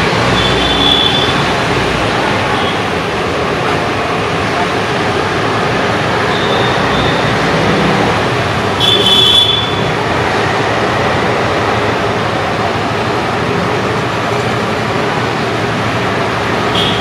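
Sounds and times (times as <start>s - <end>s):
high-pitched wheel squeal: 0.3s - 1.5s, 6.2s - 7.6s.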